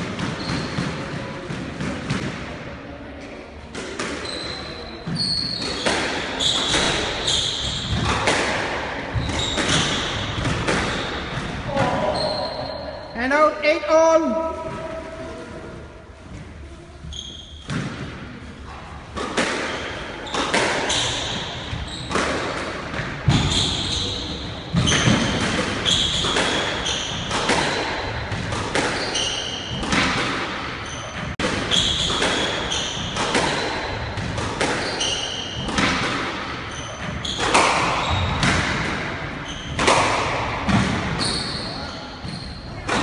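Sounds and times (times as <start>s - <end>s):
squash ball hits echoing: 0.0s - 2.8s, 3.7s - 13.0s, 17.2s - 43.0s
shoes squeaking on wooden floor: 4.2s - 8.2s, 9.1s - 13.0s, 17.0s - 17.7s, 23.3s - 27.3s, 28.8s - 29.8s, 30.8s - 35.7s, 41.2s - 42.8s.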